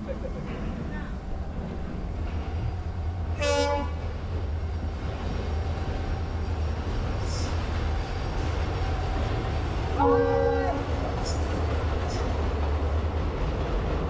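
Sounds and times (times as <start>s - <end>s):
train rumbling across steel bridge: 0.0s - 14.0s
short high-pitched train hoot: 10.0s - 11.4s.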